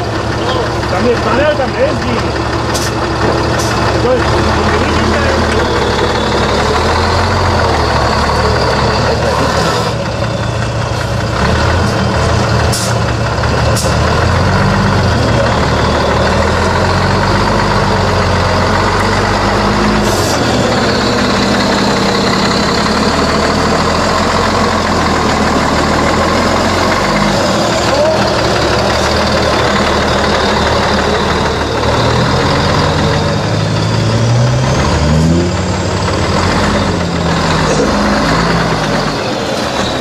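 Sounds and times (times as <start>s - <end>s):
diesel truck engine revving: 0.0s - 40.0s.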